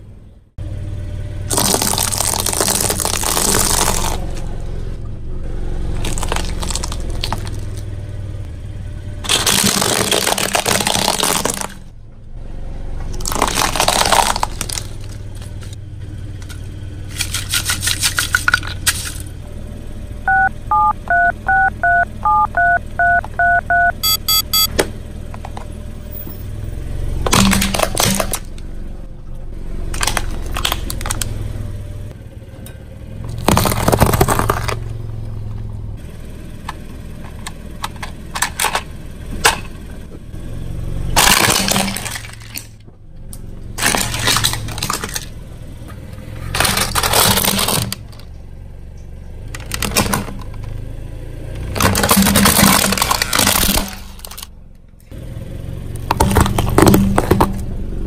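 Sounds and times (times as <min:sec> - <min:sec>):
two-pitch electronic beeps: 0:20.3 - 0:24.7
tyre crushing objects on concrete: 0:33.3 - 0:34.9, 0:56.0 - 0:57.8.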